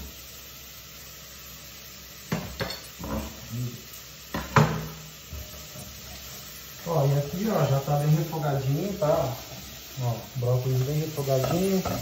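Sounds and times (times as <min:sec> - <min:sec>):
vegetables sizzling in a pot: 0:00.0 - 0:12.0
utensils knocking against pot: 0:11.4 - 0:12.0.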